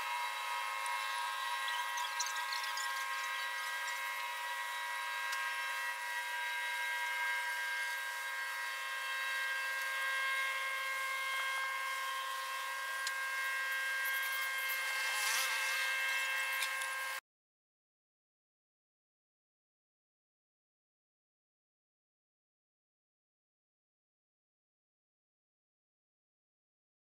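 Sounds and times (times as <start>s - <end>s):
high buzzing drone: 0.0s - 17.2s.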